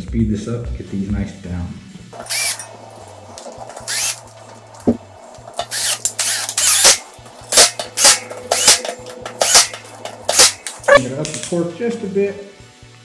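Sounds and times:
cordless drill whirring in bursts: 2.2 - 2.7, 3.9 - 4.2, 5.7 - 9.7.

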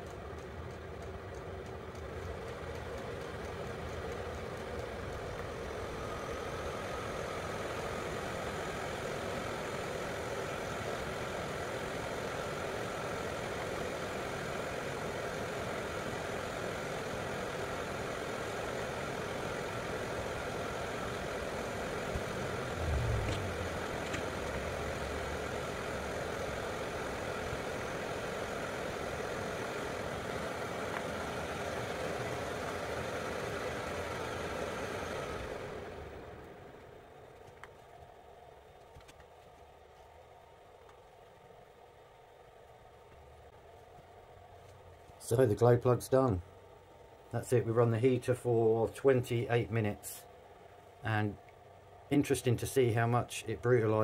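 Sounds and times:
heater fan whirring: 0.0 - 54.0
low thump: 22.8 - 24.3.

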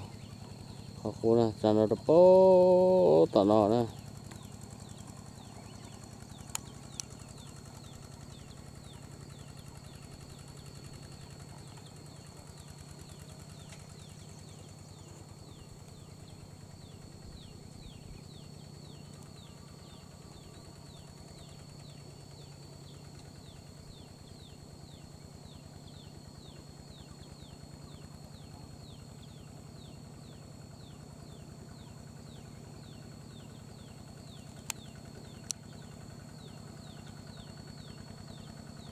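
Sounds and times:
distant small engine running: 0.0 - 38.9
steady high whine: 0.0 - 38.9.

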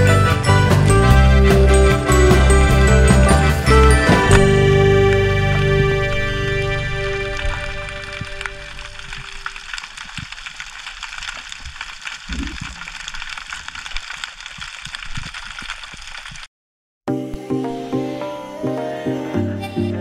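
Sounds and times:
background music: 0.0 - 9.0, 17.1 - 20.0
underwater crackle of clicks: 7.3 - 16.5.

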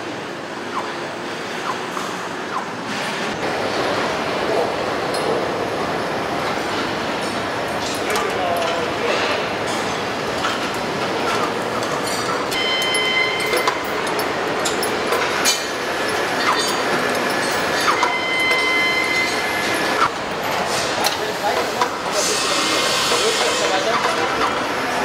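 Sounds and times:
metallic clicks and clanks: 7.2 - 20.1.

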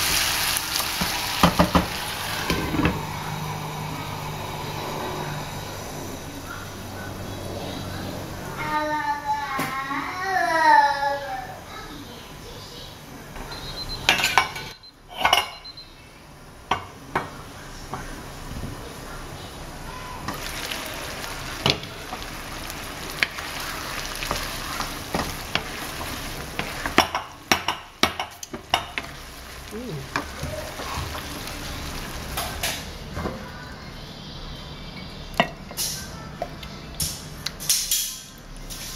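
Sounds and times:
sauce sizzling in a wok: 0.0 - 7.1, 18.2 - 33.1.

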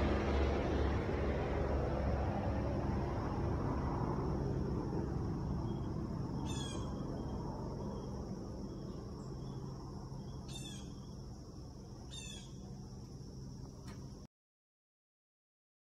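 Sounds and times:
helicopter rotor and engine hum: 0.0 - 14.3
bird calling: 5.7 - 11.4, 12.0 - 12.7.

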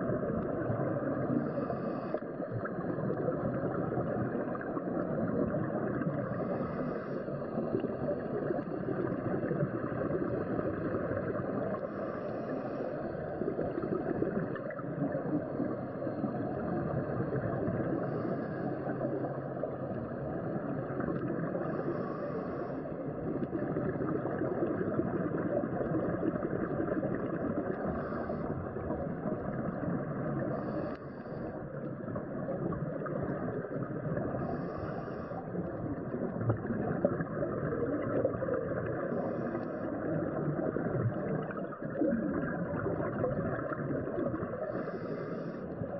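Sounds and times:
diver's bubbles gurgling: 0.0 - 12.0, 23.1 - 45.9
muffled underwater rush: 0.0 - 45.9.

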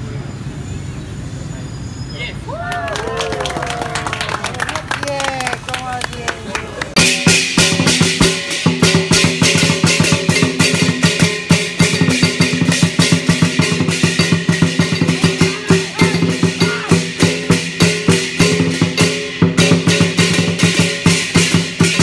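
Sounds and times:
brass hand cymbals clashing: 7.0 - 22.0
large drum beaten fast: 7.0 - 22.0.

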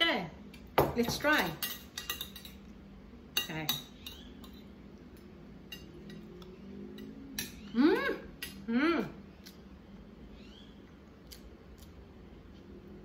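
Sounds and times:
cutlery clinking on a plate: 1.1 - 2.7.

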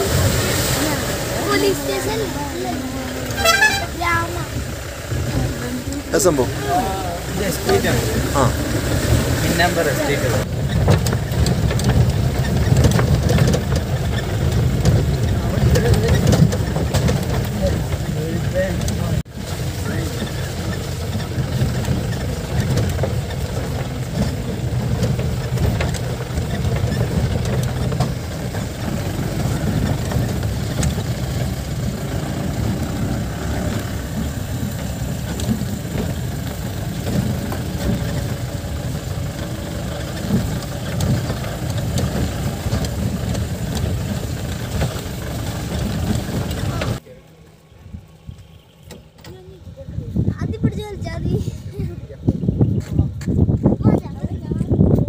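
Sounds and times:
car engine running: 0.0 - 52.7
vehicle body knocks and rattles: 10.4 - 47.0.

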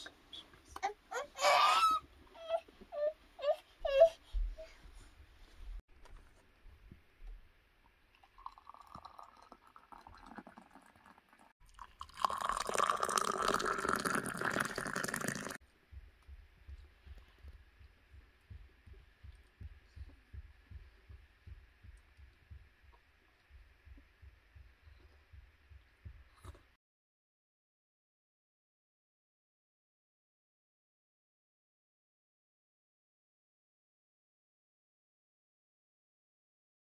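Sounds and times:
tea pouring into glass cups: 8.1 - 15.6.

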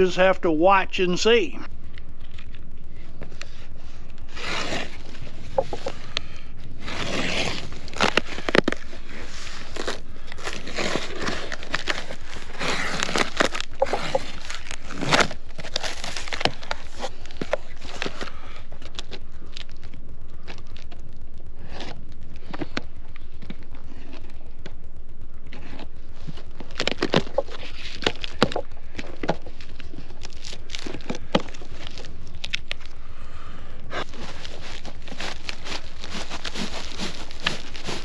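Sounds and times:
cardboard box scraping and rustling: 4.3 - 5.8, 6.8 - 17.1, 34.0 - 38.0.

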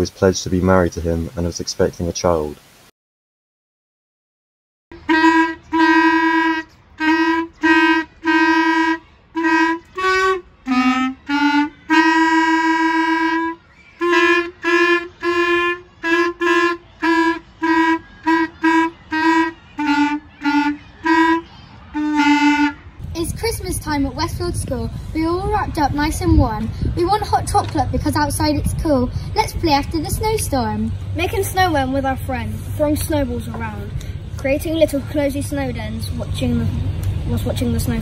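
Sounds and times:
toy plastic clarinets playing melody: 4.9 - 22.9.

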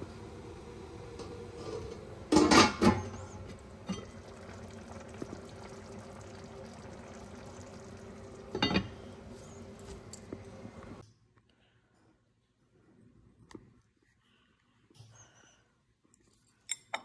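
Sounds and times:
sauce simmering and bubbling: 0.0 - 11.0
pot lid clanking: 1.2 - 3.2, 8.5 - 9.0.

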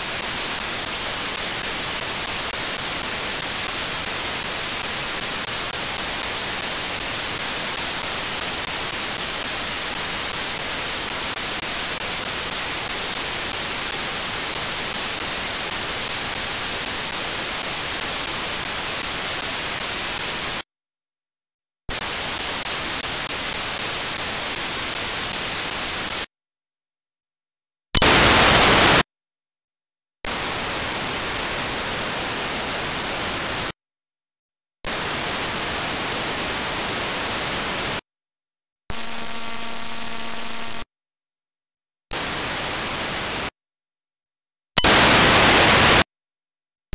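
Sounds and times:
radio static hiss: 0.0 - 20.6, 21.9 - 26.3, 28.0 - 29.0, 30.3 - 33.8, 38.9 - 40.9, 44.8 - 46.1.

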